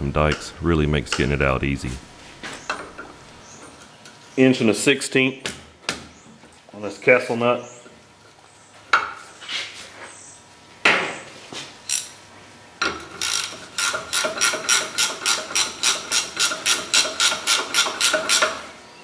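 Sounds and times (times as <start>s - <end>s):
ratchet wrench clicking: 13.2s - 18.6s.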